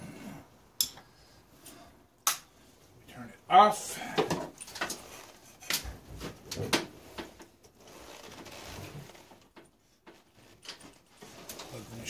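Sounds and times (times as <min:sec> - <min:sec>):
faint steady rustle: 0:04.5 - 0:12.0.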